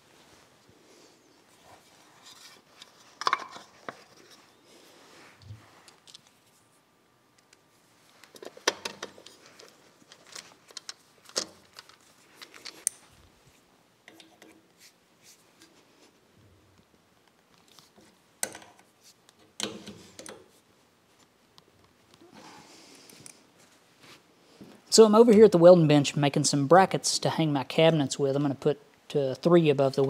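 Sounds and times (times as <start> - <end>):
screwdriver clicks and scrapes on metal: 14.1 - 14.8.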